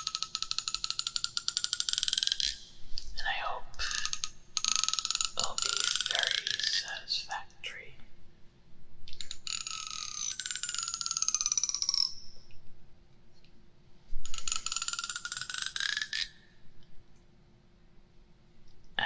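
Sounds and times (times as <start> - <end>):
comb teeth clicking buzz: 0.0 - 2.6, 3.8 - 6.9, 9.1 - 12.1, 14.3 - 16.3.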